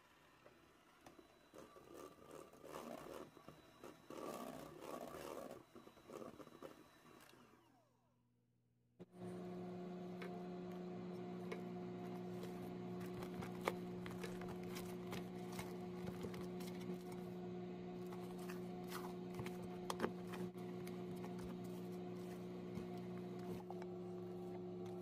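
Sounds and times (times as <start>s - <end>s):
low electrical hum: 9.1s - 25.0s.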